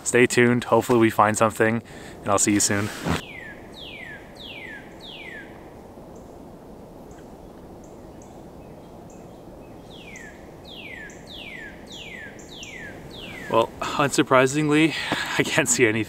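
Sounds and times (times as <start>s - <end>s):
songbird whistling: 3.2s - 5.6s, 7.9s - 13.7s.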